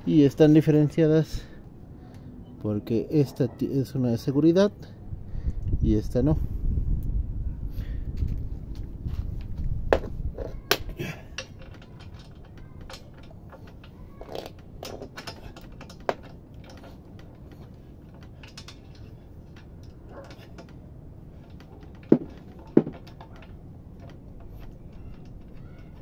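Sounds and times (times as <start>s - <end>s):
metal clinks of socket and bolt: 10.0s - 26.0s.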